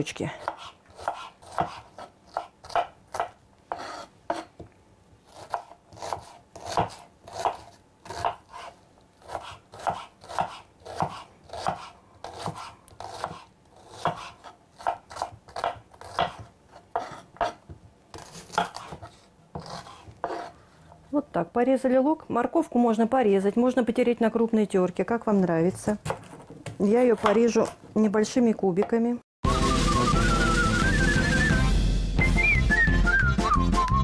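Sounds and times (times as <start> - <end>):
knife chopping on wooden board: 0.4 - 4.7, 5.3 - 20.5.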